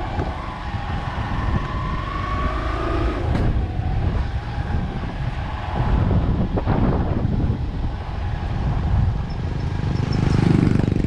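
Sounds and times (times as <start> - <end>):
motorcycle engine hum: 0.0 - 11.0
wind rumbling on microphone: 0.0 - 11.0.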